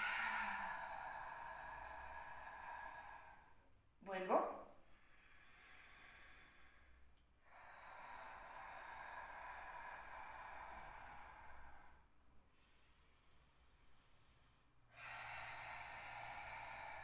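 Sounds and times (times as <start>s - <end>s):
person exhaling faintly: 0.0s - 3.7s.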